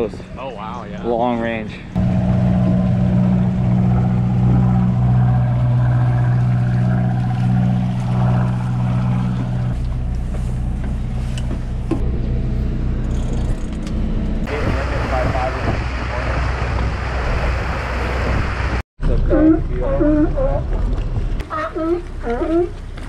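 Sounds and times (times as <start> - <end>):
low hum: 1.8 - 23.0
diesel engines idling: 2.0 - 15.6.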